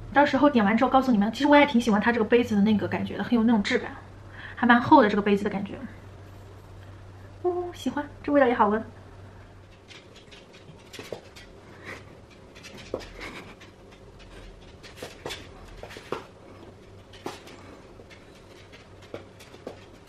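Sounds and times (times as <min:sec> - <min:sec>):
dog claws clicking on wooden floor: 0:09.6 - 0:20.0.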